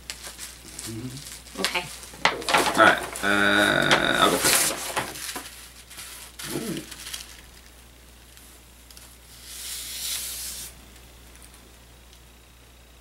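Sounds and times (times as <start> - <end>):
tissue paper rustling: 0.1 - 7.7.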